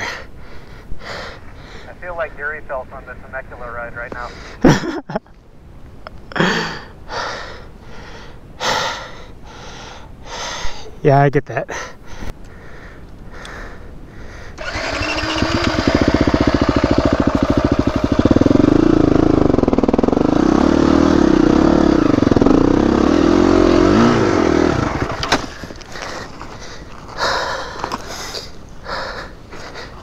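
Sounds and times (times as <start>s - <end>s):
dirt bike engine revving: 14.6s - 25.6s.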